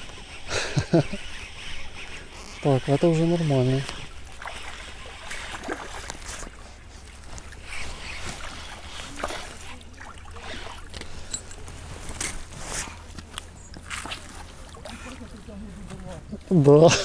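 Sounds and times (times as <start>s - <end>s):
fishing reel cranking: 0.2s - 5.6s.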